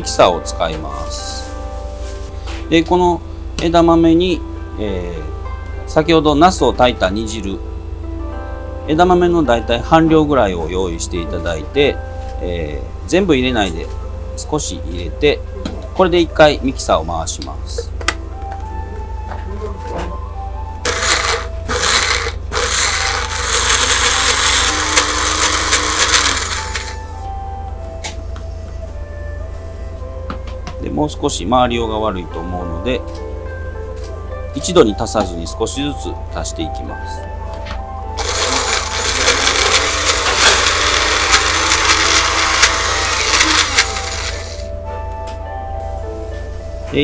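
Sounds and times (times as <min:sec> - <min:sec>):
cup blender grinding: 0:20.8 - 0:27.1, 0:38.2 - 0:44.7.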